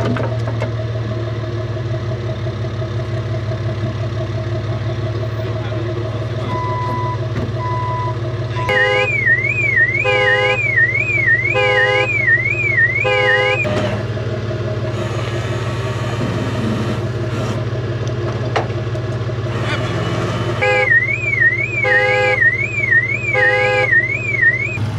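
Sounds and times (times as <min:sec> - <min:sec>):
vehicle engine idling: 0:00.0 - 0:24.9
electronic alarm siren warbling: 0:06.9 - 0:14.0, 0:20.6 - 0:24.9
horn blasts: 0:08.6 - 0:14.1, 0:14.9 - 0:17.5, 0:19.5 - 0:24.8.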